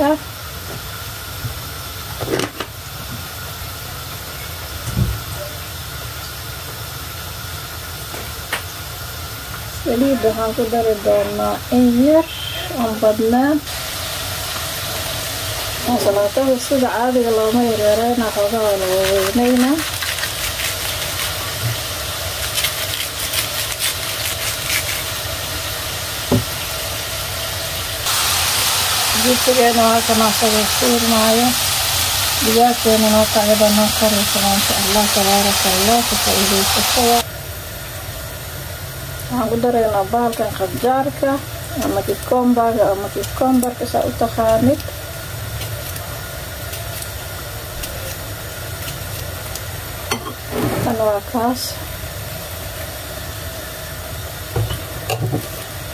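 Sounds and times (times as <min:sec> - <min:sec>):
chips deep-frying in hot oil: 0:00.0 - 0:55.9
knife slicing lettuce: 0:18.6 - 0:21.8, 0:22.4 - 0:25.2.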